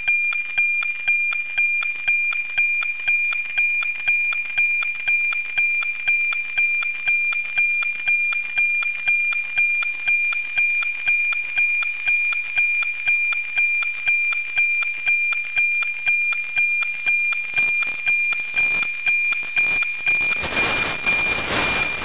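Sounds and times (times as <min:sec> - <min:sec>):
sharp tick-tock pulses: 0:00.0 - 0:22.0
steady high tone: 0:17.5 - 0:22.0.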